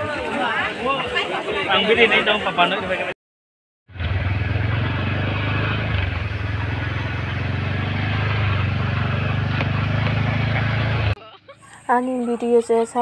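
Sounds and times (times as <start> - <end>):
wind: 0.0 - 3.1, 3.9 - 13.0
motorcycle engine running: 3.9 - 11.2
road noise: 3.9 - 13.0.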